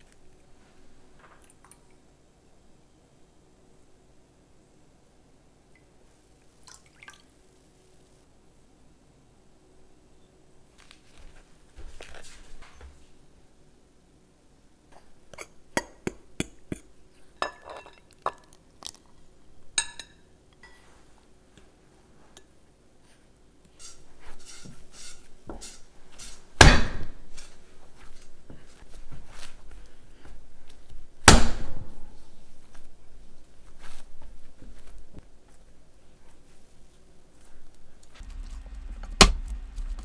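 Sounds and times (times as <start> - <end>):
dough slapped down: 26.6 - 27.2, 31.2 - 31.8.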